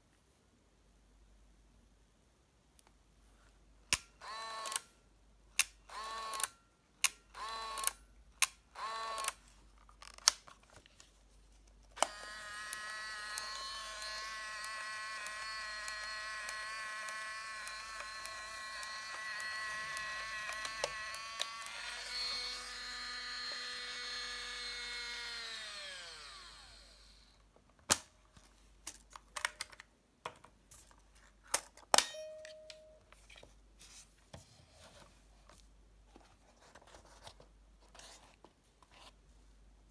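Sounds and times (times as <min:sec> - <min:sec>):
camera film motor whirring: 0:08.8 - 0:09.4, 0:12.0 - 0:27.4.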